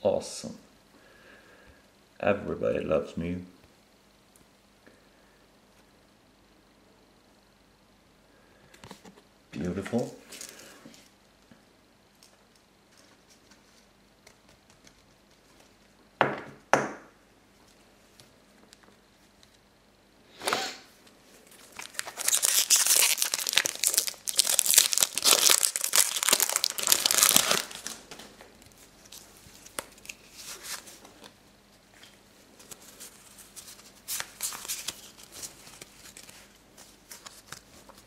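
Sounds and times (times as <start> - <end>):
foil wrapper tearing and crinkling: 21.5 - 28.1, 32.6 - 38.0.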